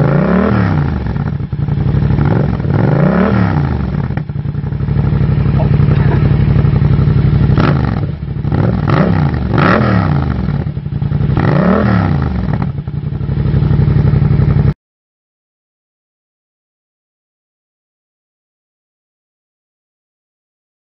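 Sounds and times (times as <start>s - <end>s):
motorcycle engine idling and revving: 0.0s - 14.8s.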